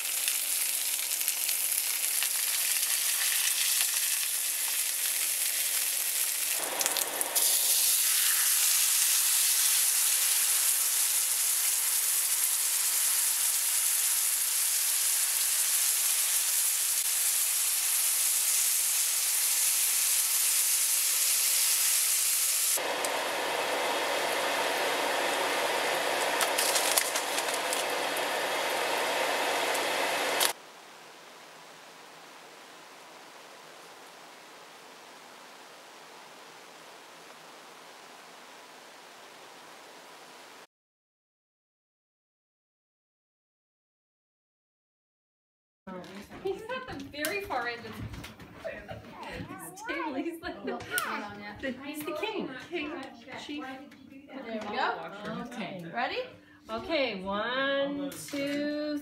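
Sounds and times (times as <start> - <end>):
sauce bubbling in pan: 0.0 - 22.3
eggplant sizzling in oil: 0.0 - 30.6.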